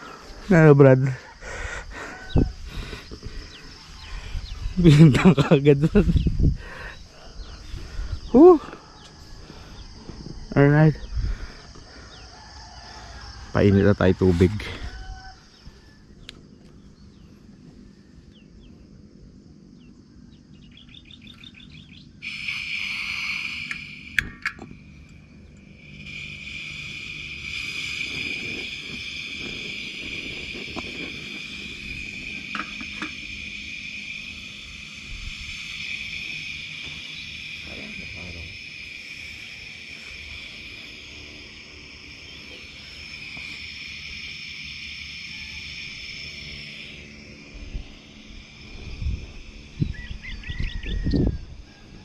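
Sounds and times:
gas burner hissing: 0:22.1 - 0:49.9
gas stove igniter clicks: 0:23.7 - 0:24.7.

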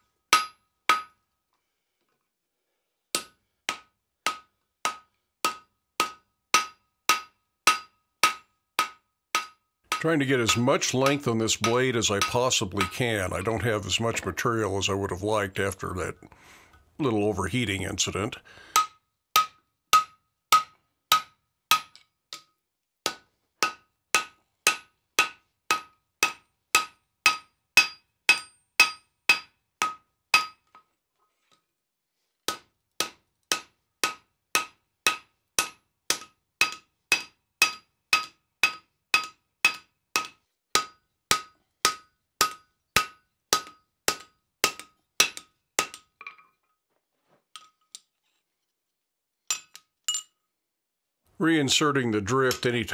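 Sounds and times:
hammer striking steel on anvil: 0:00.3 - 0:01.2, 0:03.2 - 0:13.1, 0:18.7 - 0:22.5, 0:23.1 - 0:30.8, 0:32.5 - 0:46.4, 0:52.5 - 0:52.8.

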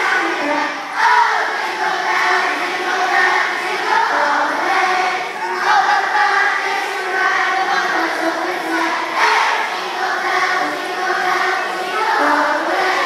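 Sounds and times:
children's choir singing: 0:00.0 - 0:13.0.

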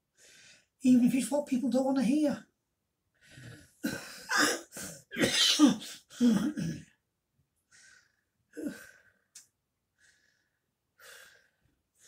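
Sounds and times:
man coughing: 0:03.8 - 0:07.0.

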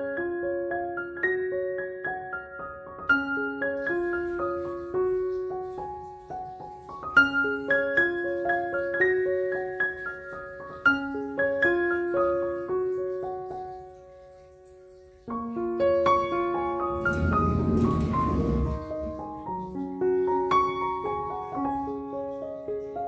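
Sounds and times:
gentle piano melody: 0:00.0 - 0:23.0.

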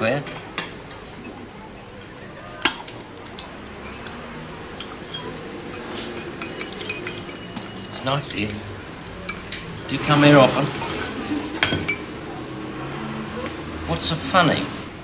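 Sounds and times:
murmur of voices: 0:00.0 - 0:15.0
china cups clinking: 0:00.3 - 0:01.4, 0:02.0 - 0:12.2.

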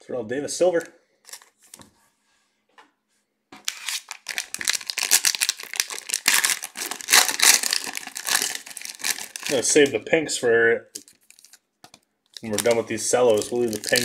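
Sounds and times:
cellophane wrappers crinkling: 0:00.8 - 0:01.8, 0:03.6 - 0:10.0, 0:10.9 - 0:14.0.

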